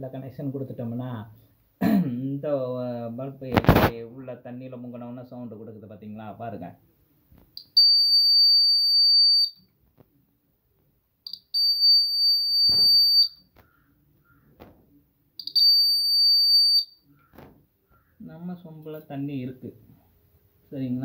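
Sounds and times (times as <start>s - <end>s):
high-pitched alarm buzzer: 11.3s - 13.4s.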